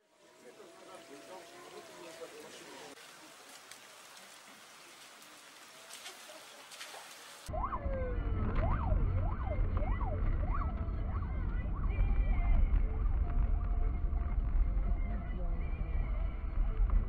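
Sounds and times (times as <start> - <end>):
faint hiss: 0.0 - 7.5
police siren wailing: 7.5 - 13.3
car driving on wet road: 8.2 - 17.0.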